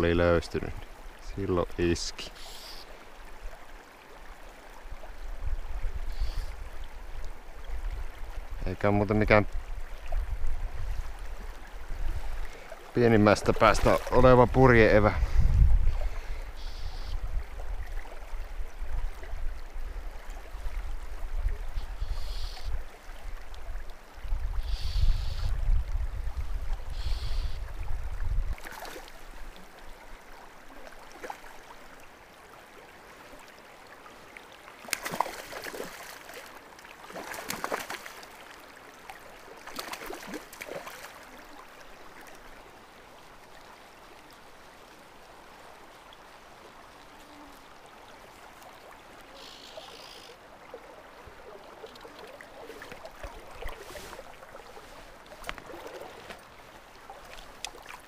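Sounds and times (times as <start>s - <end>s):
river water flowing: 0.0s - 58.0s
low rumble on microphone: 15.1s - 16.4s.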